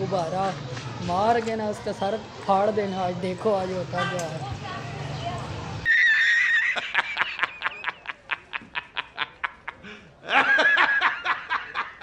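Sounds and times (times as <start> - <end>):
man laughing heartily: 6.1 - 12.0.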